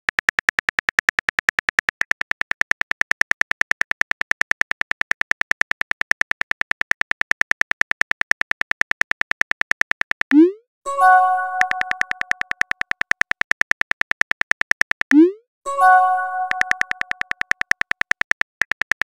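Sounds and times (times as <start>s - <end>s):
phone keyboard tap clicks: 11.6s - 15.2s, 16.5s - 19.0s.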